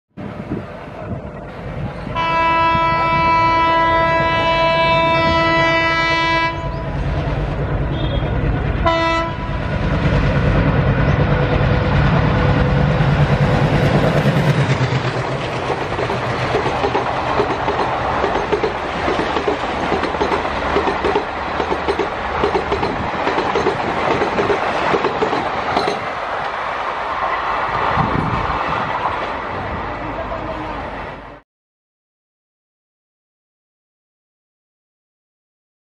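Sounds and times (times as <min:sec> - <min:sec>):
diesel locomotive horn: 0:02.0 - 0:07.2, 0:07.8 - 0:09.9
locomotive engine running hard: 0:05.2 - 0:24.6
clickety-clack of train wheels: 0:07.0 - 0:26.6.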